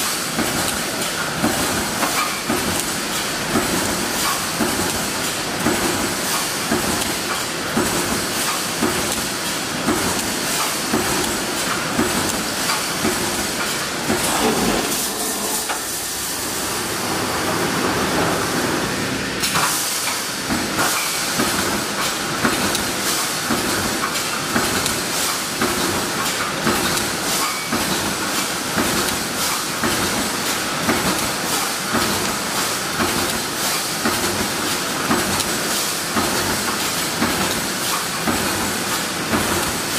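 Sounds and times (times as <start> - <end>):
welding machine mechanical clatter: 0.1 - 16.5.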